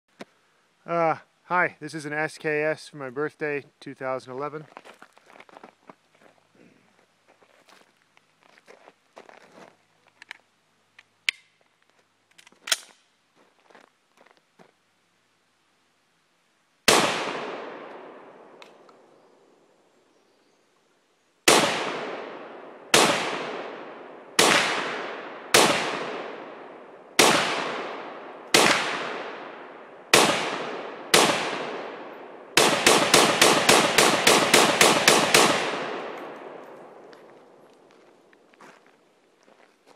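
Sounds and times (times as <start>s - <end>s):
rifle shots echoing: 16.9s - 18.6s, 21.5s - 37.1s.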